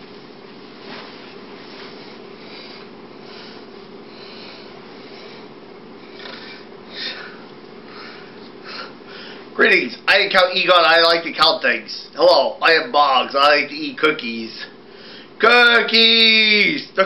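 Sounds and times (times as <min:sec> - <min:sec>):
rustling: 0:00.0 - 0:04.0
low electrical hum: 0:00.0 - 0:17.0
person breathing: 0:01.6 - 0:09.5, 0:14.8 - 0:15.4.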